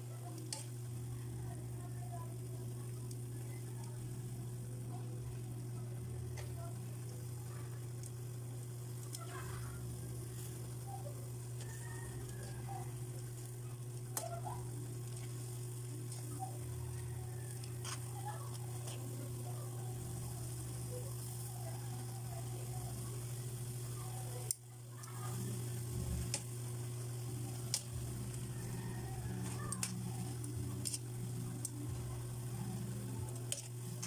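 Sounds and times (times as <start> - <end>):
broth sizzling: 0.0 - 34.0
low hum: 0.0 - 34.0
tongs clicking against wok: 0.3 - 0.9, 24.4 - 25.2, 27.7 - 28.0, 28.6 - 31.8, 33.2 - 34.0.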